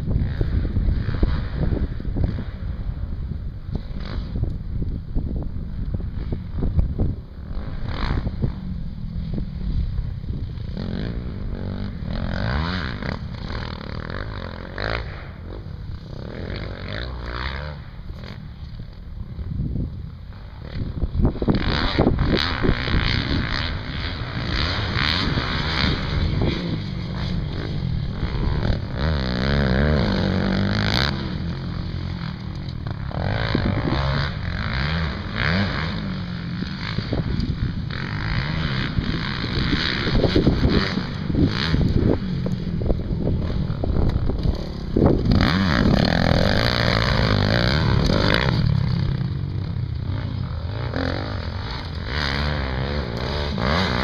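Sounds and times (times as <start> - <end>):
dirt bike engines revving: 0.0 - 54.0.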